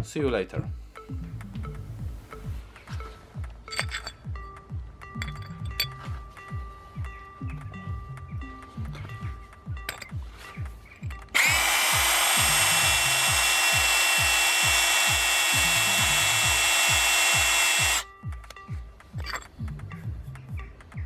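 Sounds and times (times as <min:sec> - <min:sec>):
hammer drill whining into tile: 0:11.3 - 0:18.1.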